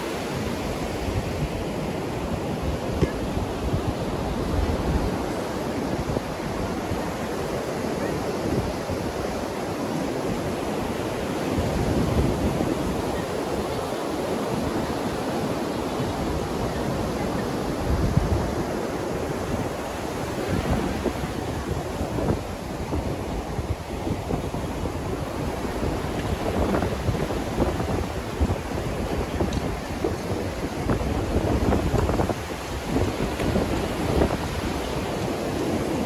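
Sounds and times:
ocean surf breaking on beach: 0.0s - 36.0s
wind buffeting microphone: 0.0s - 36.0s.

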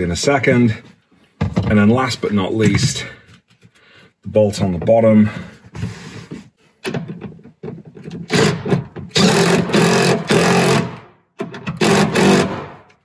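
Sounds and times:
cordless drill bursts: 8.3s - 11.0s, 11.8s - 12.8s.

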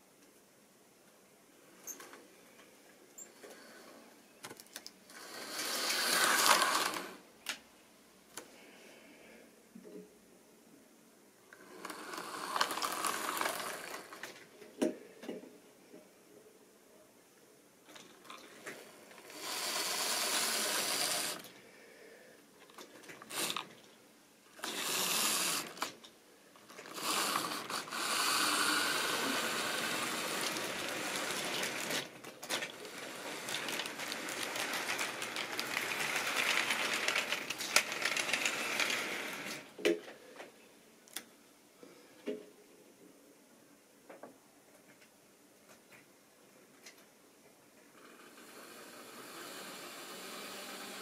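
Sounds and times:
model train wheels clattering: 4.5s - 7.2s, 11.6s - 14.4s, 17.9s - 21.5s, 22.7s - 23.8s, 24.6s - 39.7s
small electric motor whirring: 5.1s - 7.2s, 11.6s - 14.2s, 19.2s - 21.5s, 24.6s - 26.0s, 26.7s - 32.1s.

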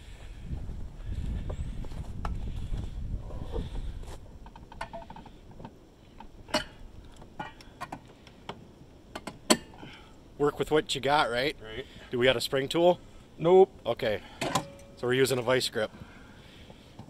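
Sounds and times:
low rumbling noise: 0.0s - 7.4s.

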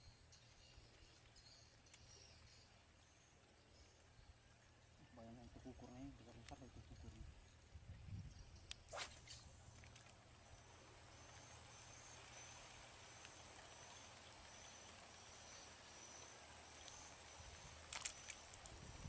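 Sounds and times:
insect chirps: 0.0s - 19.0s
insect chorus whining: 10.4s - 19.0s.

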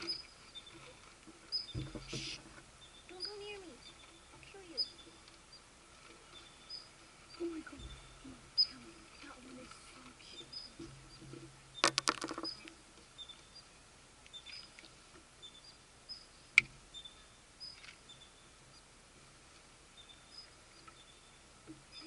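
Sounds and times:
faint high chirps: 0.0s - 5.7s, 6.3s - 9.6s, 15.4s - 18.9s.

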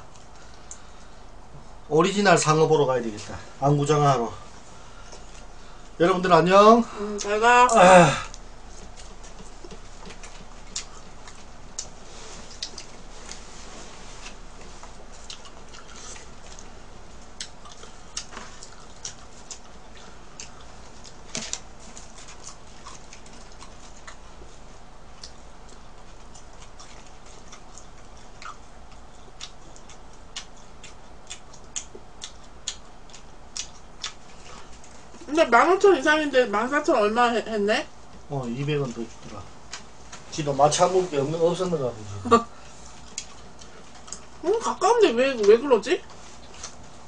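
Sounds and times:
faint steady hum: 0.0s - 47.0s
crunchy chewing: 8.3s - 35.3s, 42.5s - 44.8s, 45.4s - 47.0s.

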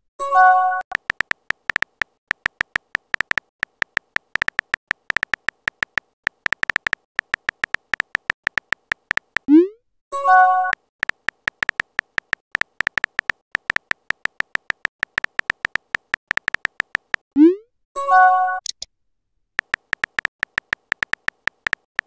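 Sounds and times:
smartphone keyboard tap clicks: 0.9s - 9.5s, 11.0s - 17.2s, 19.6s - 22.0s.

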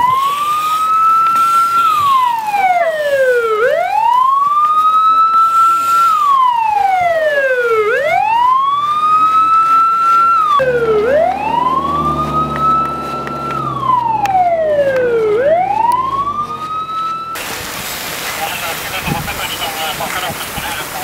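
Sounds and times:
electronic siren wailing: 0.0s - 17.4s
low engine hum: 8.0s - 18.9s.

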